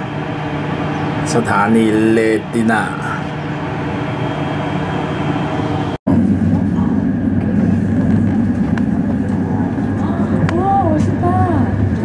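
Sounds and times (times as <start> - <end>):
train carriage rumble: 0.0 - 12.0
train interior hum: 0.0 - 12.0.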